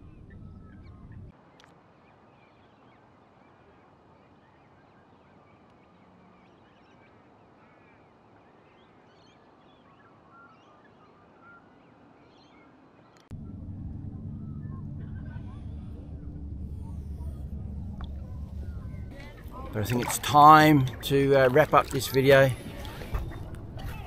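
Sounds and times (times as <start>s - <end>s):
low rumble: 0.0s - 1.3s, 13.3s - 20.2s, 21.8s - 24.0s.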